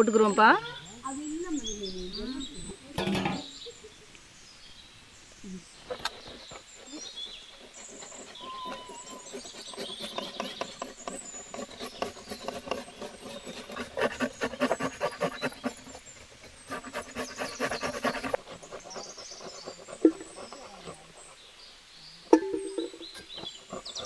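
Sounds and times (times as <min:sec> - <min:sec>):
birds chirping: 0:00.0 - 0:24.0
rapid scraping strokes: 0:05.9 - 0:21.5.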